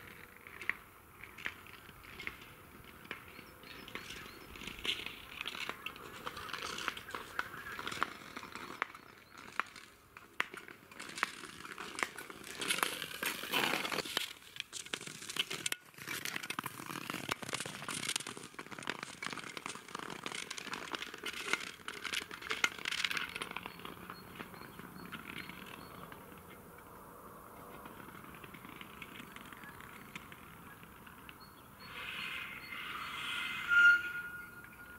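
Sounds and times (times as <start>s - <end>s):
skates crackling on ice: 0.0s - 34.9s
skate blades scraping hiss: 31.9s - 34.5s.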